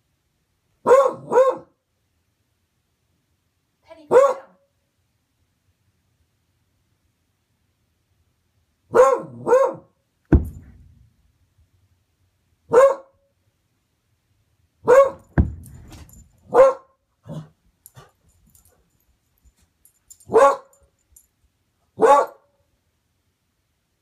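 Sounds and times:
dog barking: 0:00.8 - 0:01.8, 0:04.1 - 0:04.6, 0:08.9 - 0:10.0, 0:12.7 - 0:13.2, 0:14.8 - 0:15.4, 0:16.5 - 0:17.5, 0:20.3 - 0:20.8, 0:22.0 - 0:22.5
dull thumps: 0:10.3 - 0:11.1, 0:15.1 - 0:16.3.

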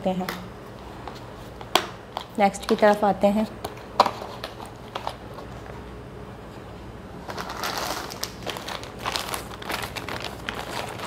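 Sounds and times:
plastic bag rustling: 0:07.2 - 0:11.0.

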